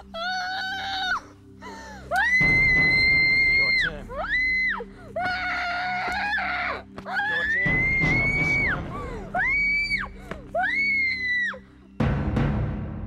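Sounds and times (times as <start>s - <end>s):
low music drone: 0.0s - 13.0s
woman screaming in terror: 2.1s - 11.6s.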